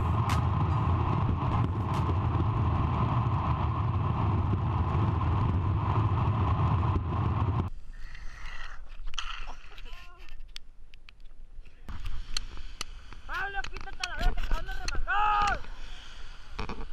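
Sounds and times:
longboard wheels rolling on asphalt: 0.0s - 7.7s
wind rushing over microphone: 0.0s - 7.7s.

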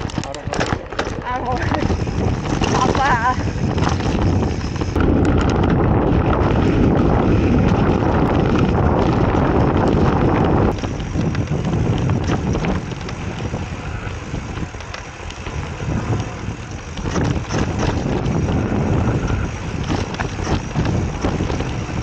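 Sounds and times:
bike rattling clicks: 0.0s - 22.0s
tyres crunching on dirt: 0.0s - 22.0s
wind buffeting microphone: 0.0s - 22.0s.

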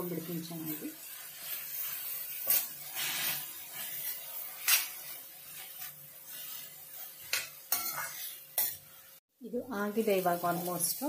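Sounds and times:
metal spoon scraping pan: 0.2s - 9.2s
spoon clinking against pan: 7.3s - 8.8s.

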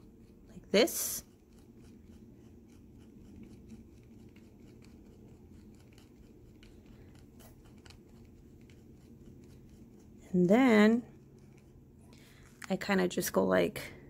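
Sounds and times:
craft knife scratching canvas: 1.0s - 10.1s.

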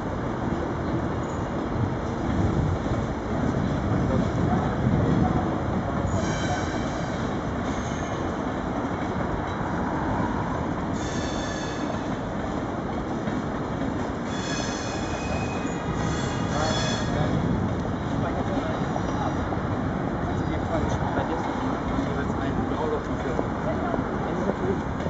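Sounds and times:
train rumbling on tracks: 0.0s - 25.0s
train wheels squealing: 6.1s - 8.2s, 11.0s - 12.2s, 14.3s - 17.2s.

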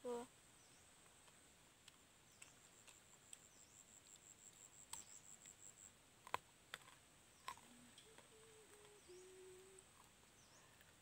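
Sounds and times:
faint low hum: 0.0s - 11.0s
faint high pulsing buzz: 7.6s - 11.0s.

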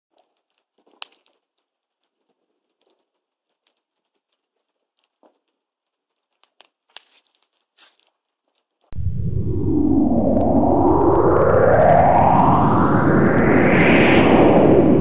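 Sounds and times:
fire crackling: 0.1s - 11.9s.

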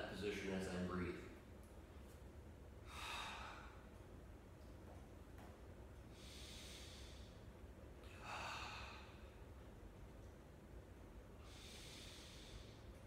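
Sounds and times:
man breathing: 2.8s - 4.0s, 6.0s - 9.6s, 11.3s - 13.0s.

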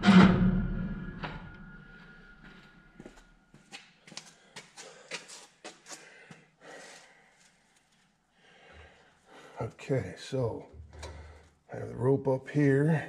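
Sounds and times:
soft rope rustle: 6.9s - 8.3s.

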